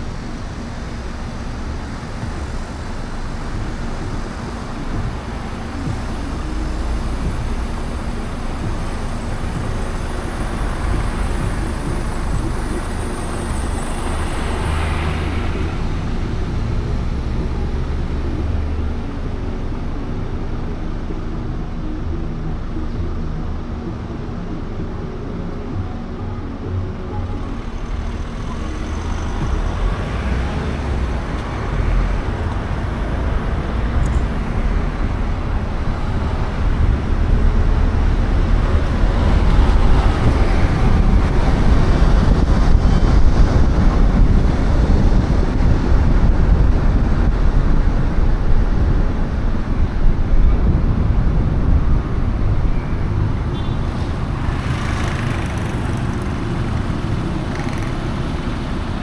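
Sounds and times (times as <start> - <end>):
car road and tyre noise: 0.0 - 59.0.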